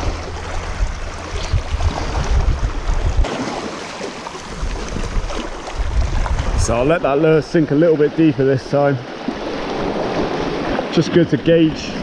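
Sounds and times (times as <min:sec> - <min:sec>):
wind gusting across microphone: 0:00.0 - 0:03.7, 0:04.3 - 0:08.6, 0:09.3 - 0:12.0
waves lapping against rocks: 0:00.0 - 0:12.0.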